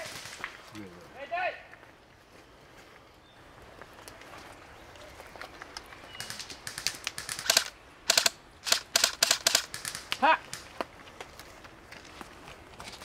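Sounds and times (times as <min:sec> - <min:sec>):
airsoft rifle firing bursts: 0:06.2 - 0:10.6.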